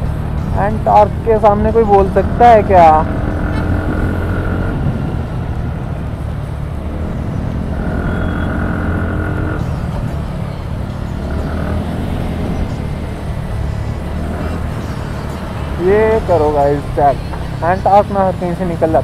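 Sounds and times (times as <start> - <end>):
traffic road noise: 0.0 - 19.0
scooter engine running: 5.6 - 17.8.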